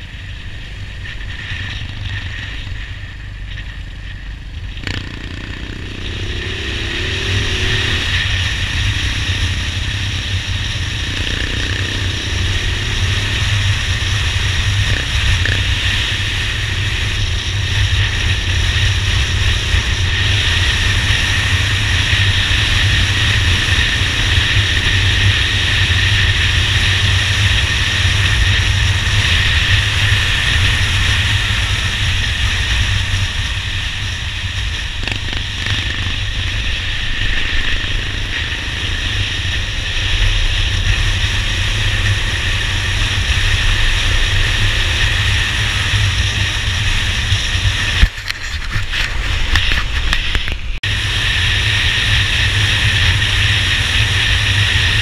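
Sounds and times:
motorcycle engine drone: 0.0 - 55.0
wind rushing over microphone: 0.0 - 55.0.

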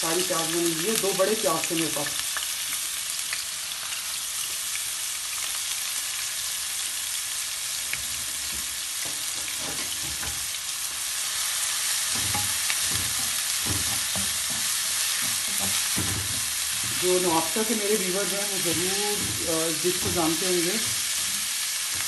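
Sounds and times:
onions sizzling in hot oil: 0.0 - 22.0
wooden spatula scraping a wok: 12.0 - 22.0.

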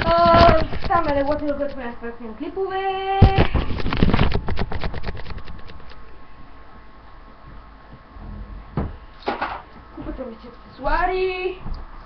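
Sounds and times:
thump: 8.7 - 9.6.

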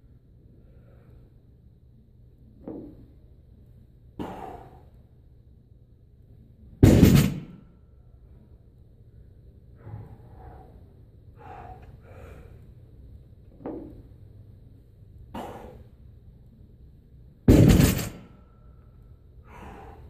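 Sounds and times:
breathy exhales: 4.2 - 5.0, 9.8 - 12.7, 15.3 - 15.9, 18.3 - 20.0
barbell crashing onto platform: 6.8 - 7.6, 17.5 - 18.4.

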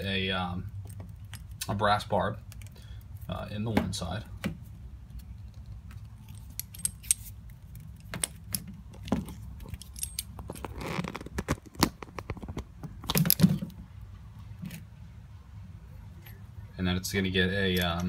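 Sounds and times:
low steady hum: 0.0 - 18.0
handling clatter: 5.1 - 13.8
small metallic clicks and clinks: 5.4 - 8.7, 9.6 - 10.7.

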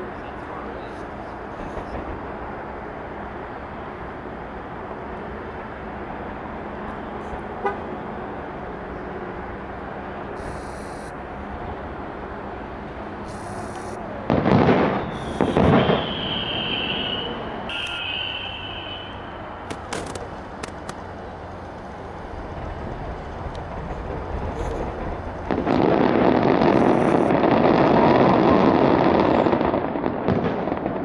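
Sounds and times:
distant fireworks: 0.0 - 7.9, 9.8 - 31.0
loud crackling bursts: 10.4 - 11.2, 13.2 - 18.8, 19.6 - 31.0
steady high tone: 16.4 - 19.4.

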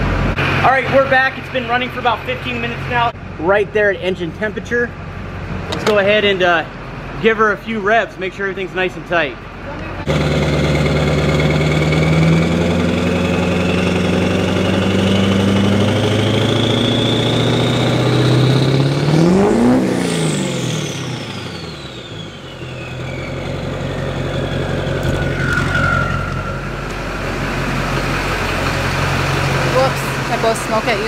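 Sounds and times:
diesel engine revving: 0.0 - 31.0
turbo whistle: 22.0 - 26.7.

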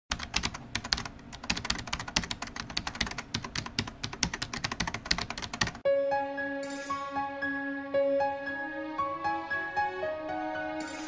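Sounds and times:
rapid keyboard typing: 0.1 - 5.8
music: 5.8 - 11.0.

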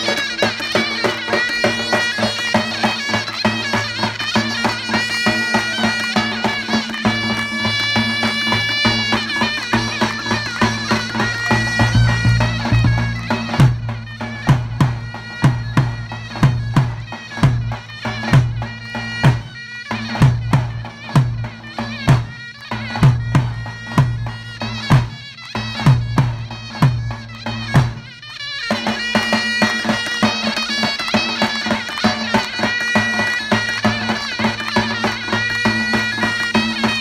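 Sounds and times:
shrill reedy pipe melody: 0.0 - 37.0
bass drum beat: 11.4 - 18.6.

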